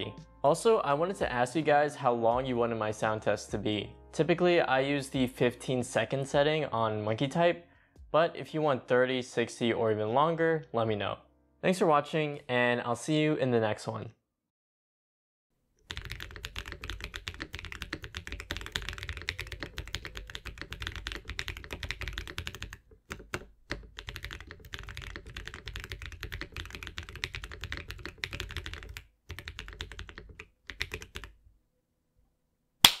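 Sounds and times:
fast mechanical keyboard typing: 15.9s - 31.3s.

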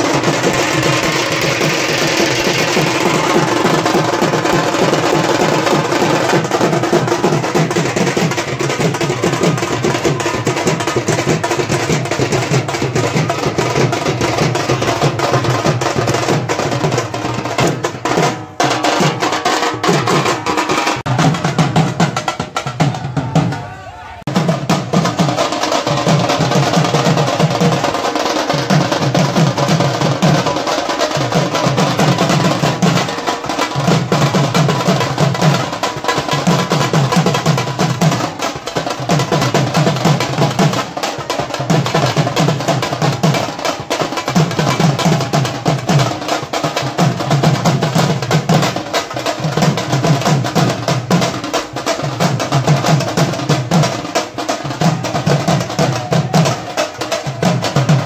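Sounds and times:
crowd voices: 0.0s - 11.1s, 22.5s - 24.4s
barrel drums beaten with sticks: 0.0s - 23.7s, 24.3s - 58.0s.

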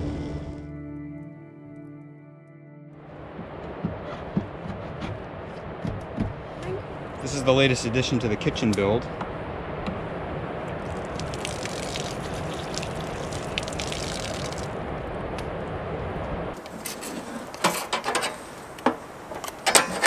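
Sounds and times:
sharp knocks and clatters: 3.3s - 6.4s
hands rinsing under water: 10.8s - 14.7s
water running from tap: 10.9s - 14.7s.

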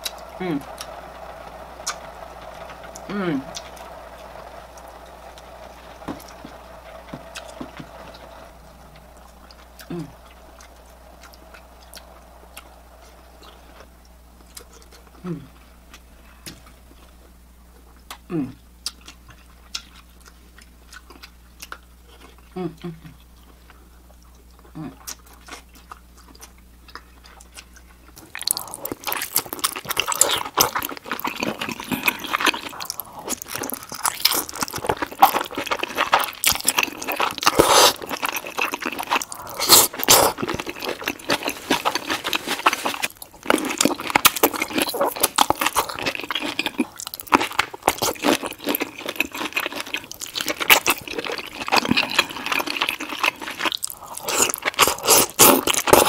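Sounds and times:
wet sticky chewing: 24.1s - 56.0s
crunchy bites: 25.1s - 56.0s.

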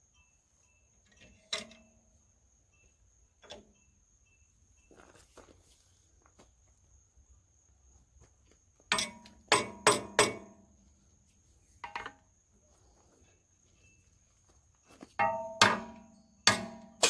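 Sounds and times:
hammer striking steel: 8.9s - 10.6s, 15.2s - 17.0s.

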